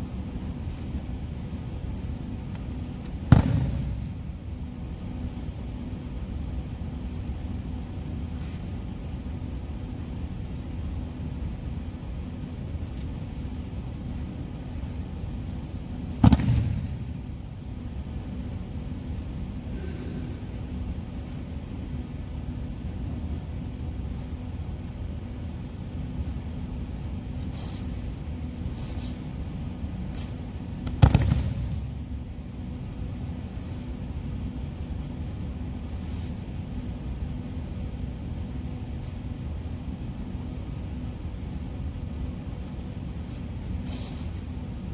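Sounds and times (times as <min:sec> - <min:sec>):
low background rumble: 0:00.0 - 0:44.9
steady low hum: 0:00.0 - 0:44.9
body slapping onto mats: 0:03.0 - 0:04.1, 0:16.2 - 0:17.0, 0:30.8 - 0:31.8.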